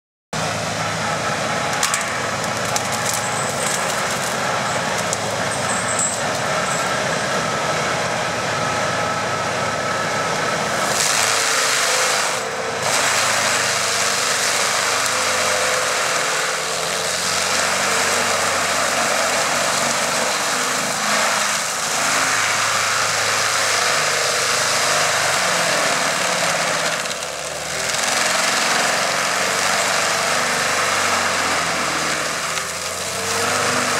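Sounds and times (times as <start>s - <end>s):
rotor grinding tree stump: 0.4s - 33.9s
tractor engine: 0.4s - 33.9s
wood cracking and splintering: 1.7s - 6.9s, 12.8s - 33.9s.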